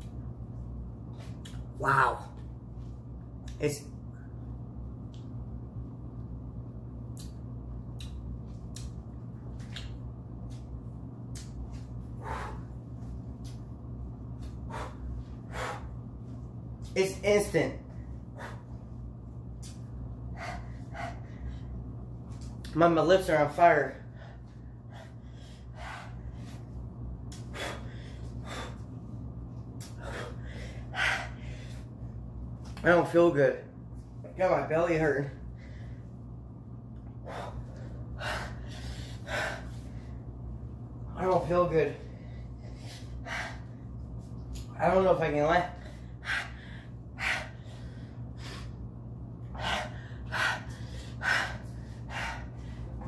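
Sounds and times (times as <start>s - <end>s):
man gasping and panting: 29.8s - 31.8s, 49.5s - 53.0s.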